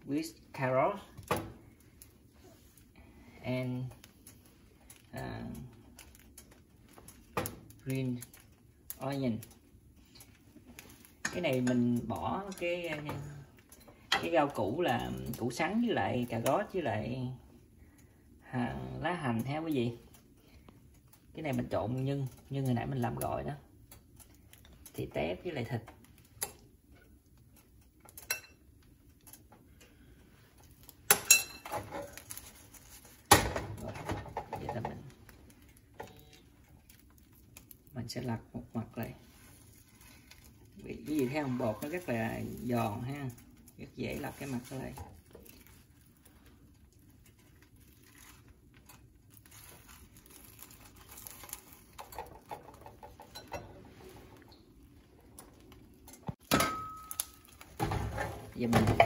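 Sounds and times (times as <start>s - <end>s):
scraping and handling noise: 25.7s - 38.2s, 38.8s - 59.0s.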